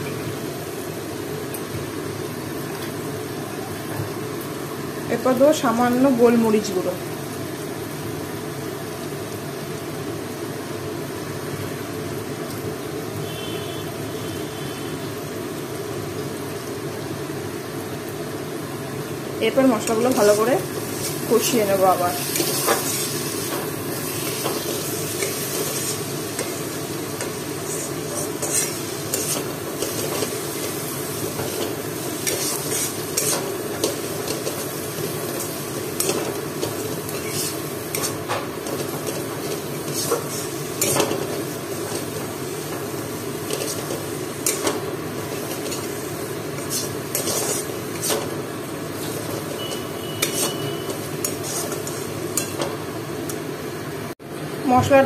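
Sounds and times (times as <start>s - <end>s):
food sizzling in a pan: 0.0s - 55.0s
metal spatula scraping pan: 27.2s - 30.7s, 31.3s - 34.7s, 46.6s - 48.3s, 49.0s - 52.7s.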